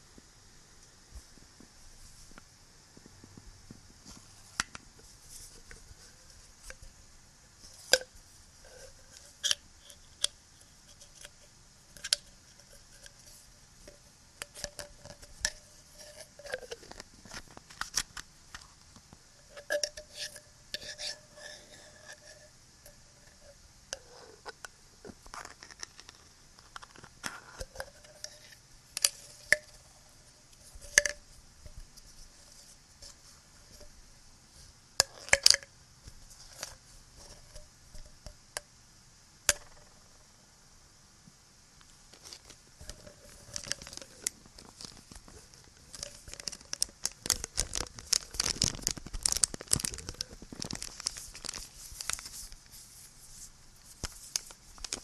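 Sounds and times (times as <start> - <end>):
steady background hiss: 0.0 - 55.0
handling of small objects: 41.8 - 55.0.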